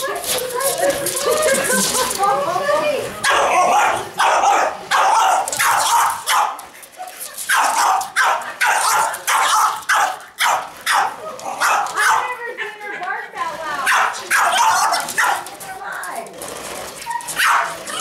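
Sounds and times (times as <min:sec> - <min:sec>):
dog barking: 0:03.2 - 0:06.6, 0:07.5 - 0:12.3, 0:13.9 - 0:15.5, 0:17.4 - 0:18.0.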